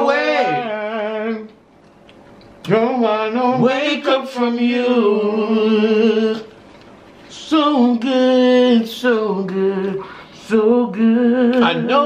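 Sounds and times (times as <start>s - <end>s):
man singing long notes: 0.0s - 1.6s.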